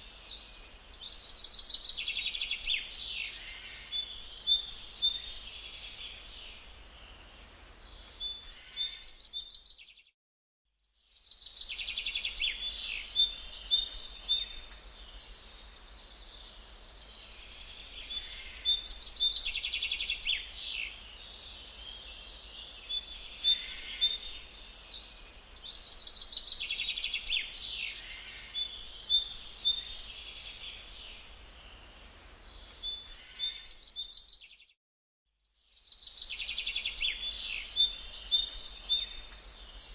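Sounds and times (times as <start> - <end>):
birds chirping and trilling: 0.0 - 7.1, 7.8 - 10.0, 11.2 - 31.8, 32.5 - 34.7, 35.7 - 39.9.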